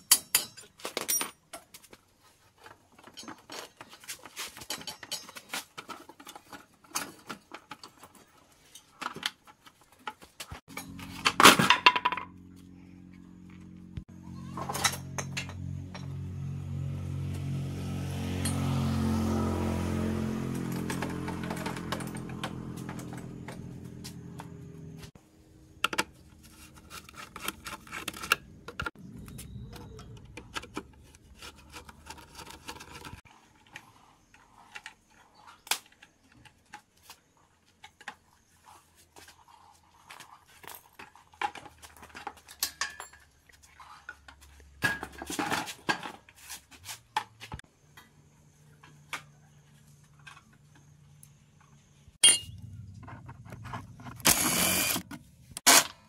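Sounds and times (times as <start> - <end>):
metal tools clinking: 0.0 - 1.8, 2.9 - 9.1, 10.7 - 12.2, 20.6 - 24.6, 40.5 - 43.4, 52.2 - 54.1.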